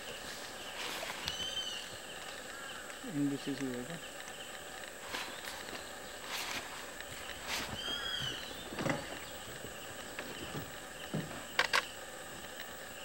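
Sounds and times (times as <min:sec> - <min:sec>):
bird whistled call: 0:01.2 - 0:01.9, 0:07.7 - 0:08.6
low rustles: 0:04.1 - 0:12.6.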